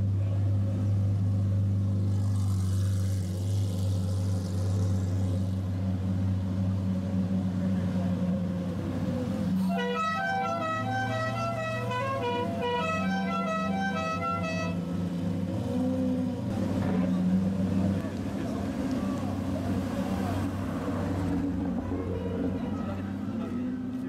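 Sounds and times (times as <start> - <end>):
sports car engines idling: 0.0 - 9.8.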